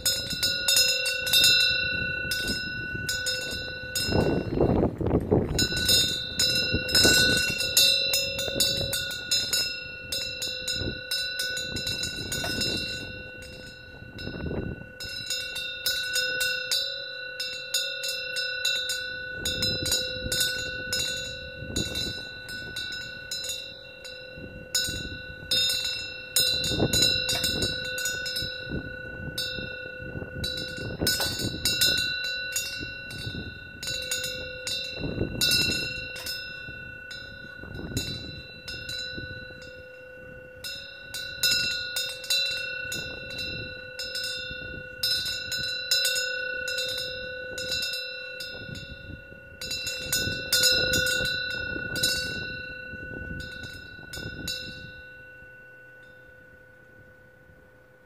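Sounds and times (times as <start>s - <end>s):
wind gusts rumbling: 0.0s - 15.5s, 19.2s - 23.4s, 32.8s - 40.5s
metal wind bell ringing: 0.0s - 58.0s.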